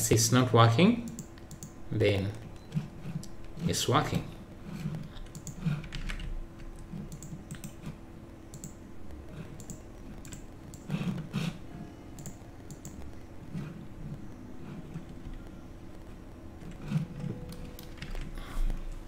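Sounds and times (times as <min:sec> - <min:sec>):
keyboard key presses: 0:16.6 - 0:18.8.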